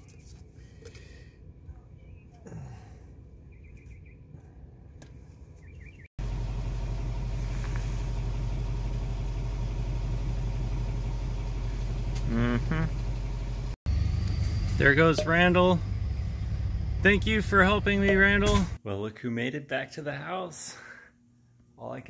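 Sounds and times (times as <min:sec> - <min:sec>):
vehicle engine idling: 0:06.2 - 0:18.8
person speaking: 0:12.3 - 0:12.9, 0:14.8 - 0:15.8, 0:17.0 - 0:18.8.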